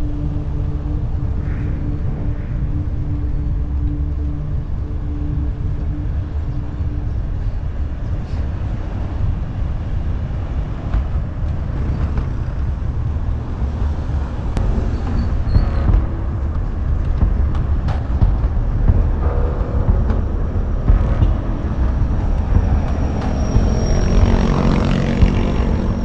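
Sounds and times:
wind buffeting microphone: 0:00.0 - 0:26.0
car traffic passing: 0:06.2 - 0:26.0.

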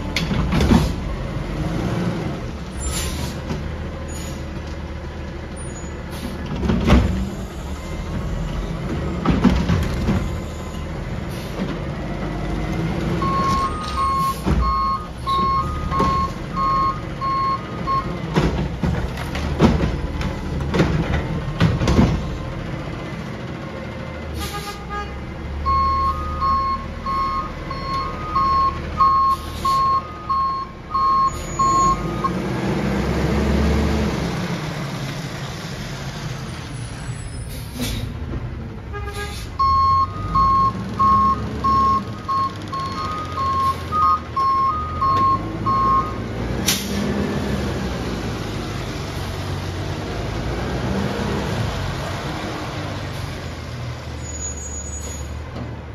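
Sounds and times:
backup alarm beeping: 0:13.2 - 0:18.1, 0:25.7 - 0:32.3, 0:39.6 - 0:46.2.

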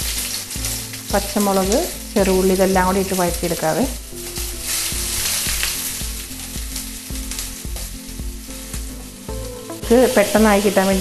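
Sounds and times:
onions sizzling in hot oil: 0:00.0 - 0:11.0.

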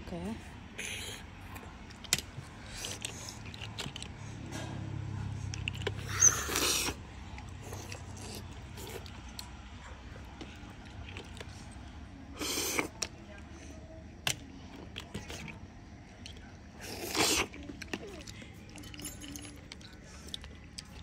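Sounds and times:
person slurping snails: 0:05.5 - 0:09.5, 0:12.3 - 0:13.1, 0:16.2 - 0:19.0
shells clicking and clinking: 0:18.3 - 0:20.4.

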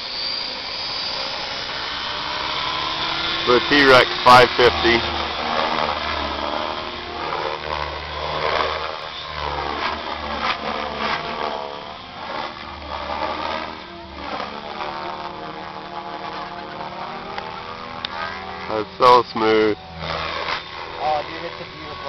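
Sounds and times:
rc helicopter rotor whine: 0:00.0 - 0:22.0.

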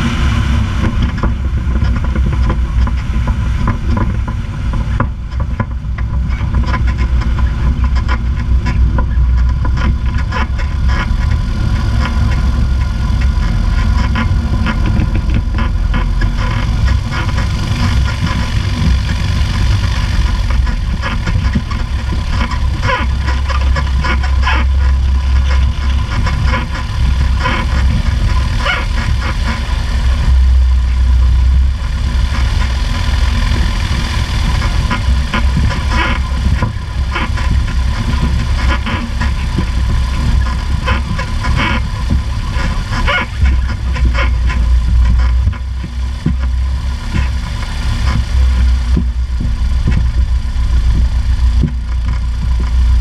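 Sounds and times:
propeller plane engine running: 0:00.0 - 0:53.0.

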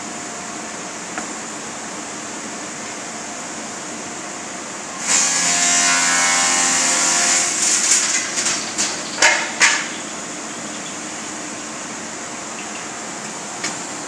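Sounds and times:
power saw cutting wood: 0:05.0 - 0:08.2.

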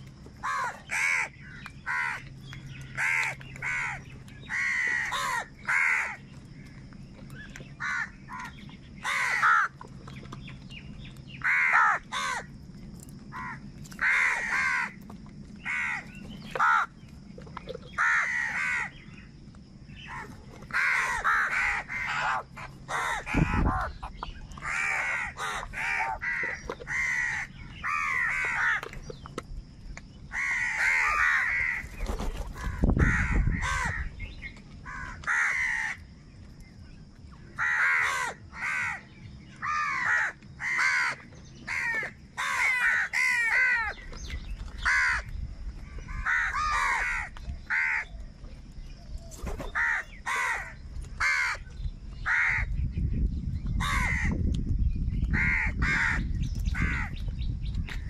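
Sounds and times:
crows cawing: 0:00.4 - 0:06.2, 0:07.8 - 0:09.8, 0:11.4 - 0:12.5, 0:13.3 - 0:15.0, 0:15.6 - 0:17.0, 0:18.0 - 0:19.0, 0:20.0 - 0:28.9, 0:30.3 - 0:32.0, 0:32.6 - 0:34.1, 0:34.8 - 0:36.0, 0:37.6 - 0:44.0, 0:44.8 - 0:45.3, 0:46.1 - 0:48.2, 0:49.7 - 0:51.6, 0:52.2 - 0:52.8, 0:53.8 - 0:54.4, 0:55.4 - 0:57.2.

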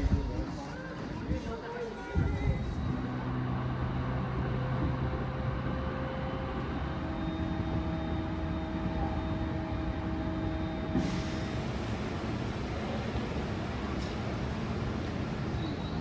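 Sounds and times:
train running rumble: 0:02.2 - 0:16.0
brief hiss: 0:10.9 - 0:11.8.

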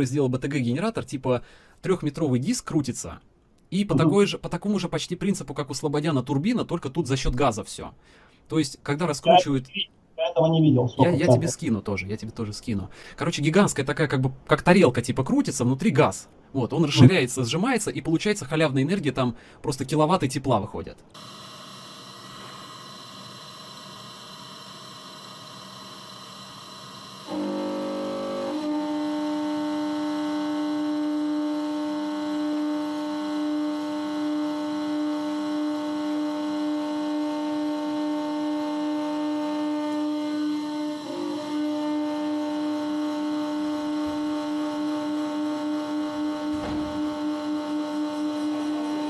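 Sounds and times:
machine hum: 0:26.7 - 0:49.0.

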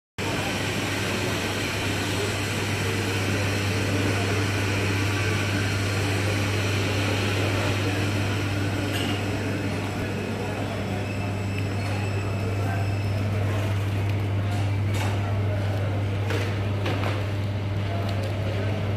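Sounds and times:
air conditioning hum: 0:00.2 - 0:18.9.

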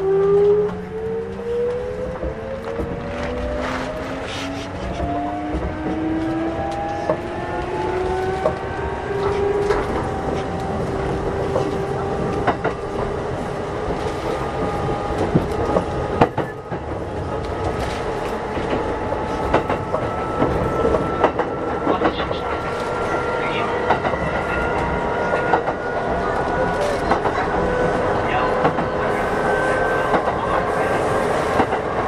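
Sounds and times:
train rumble: 0:00.0 - 0:32.0.

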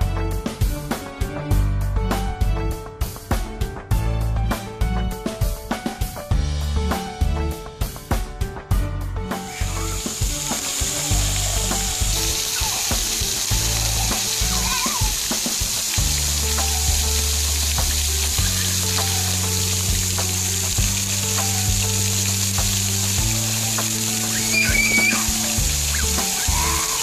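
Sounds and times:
background music low notes: 0:00.0 - 0:27.0
fountain jets spraying water: 0:09.4 - 0:27.0.

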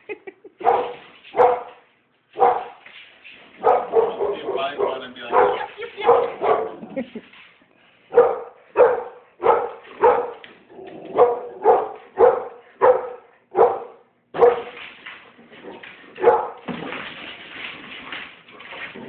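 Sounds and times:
dog barking: 0:00.6 - 0:01.8, 0:02.4 - 0:02.8, 0:03.6 - 0:06.8, 0:08.1 - 0:10.4, 0:11.1 - 0:14.8, 0:16.2 - 0:16.6.

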